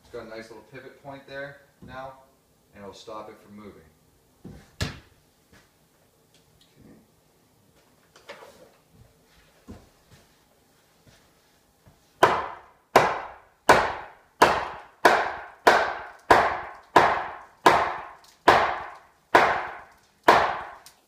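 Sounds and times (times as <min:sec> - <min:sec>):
hammer striking wood: 0:12.2 - 0:20.8.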